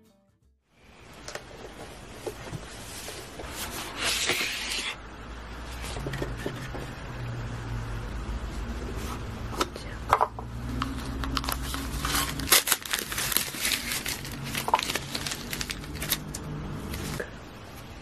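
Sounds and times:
crinkling and crackling: 10.8s - 17.8s.

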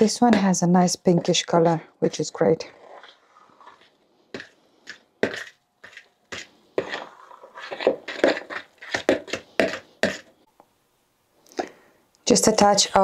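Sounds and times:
fork mashing in plastic bowl: 2.8s - 10.3s.

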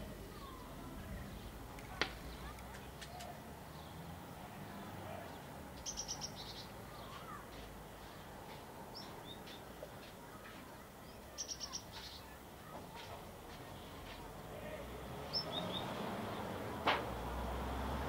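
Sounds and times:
bird chirping: 5.3s - 7.6s, 8.9s - 13.0s, 15.2s - 16.5s.

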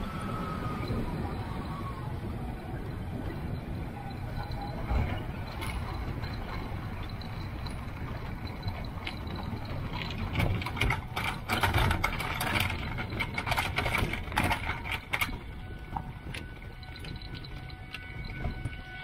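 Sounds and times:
trike rolling low rumble: 0.0s - 19.0s
frame rattling and knocking: 4.8s - 19.0s.

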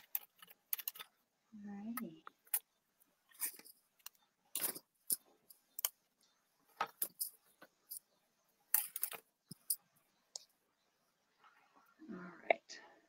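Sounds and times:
fabric strips crackling and rustling: 2.4s - 9.9s.

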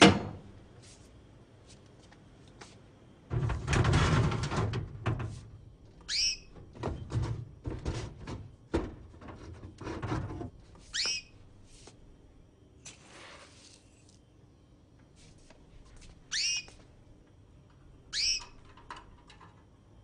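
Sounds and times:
small bird chirping: 6.0s - 6.5s, 10.9s - 11.4s, 16.3s - 16.8s, 18.1s - 18.6s.

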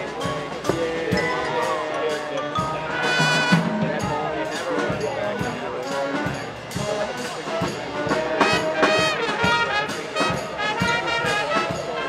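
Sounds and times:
marching band brass: 0.0s - 12.0s
steady drum beat: 0.0s - 12.0s.

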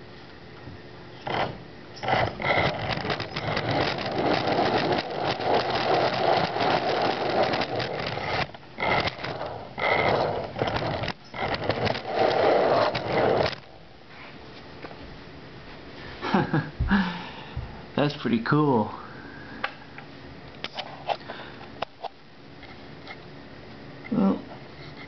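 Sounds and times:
electric motors whining: 1.2s - 13.8s
wheels scraping on wooden floor: 1.2s - 13.8s.

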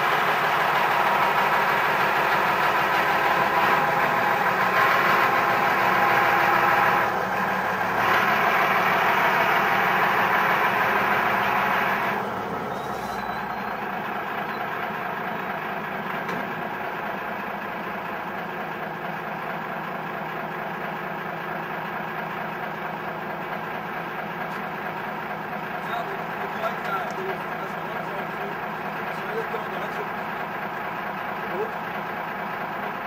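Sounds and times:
machinery drone: 0.0s - 17.2s.

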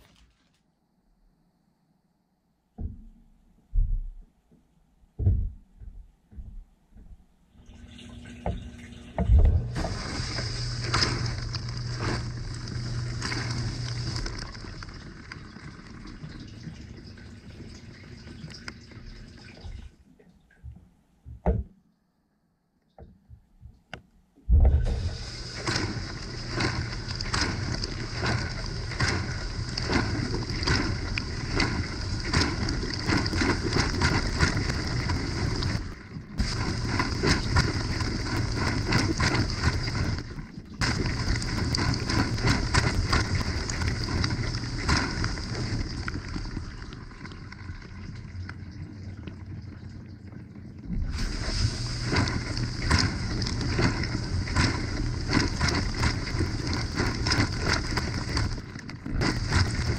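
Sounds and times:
dishwasher pump hum: 2.8s - 21.7s, 24.4s - 48.2s, 50.8s - 59.9s
water jets spattering on dishes: 7.6s - 20.0s, 24.8s - 48.2s, 51.0s - 59.9s.

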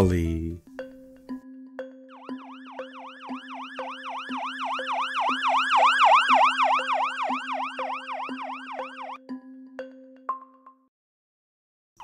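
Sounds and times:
ambulance siren yelping: 2.1s - 9.2s.

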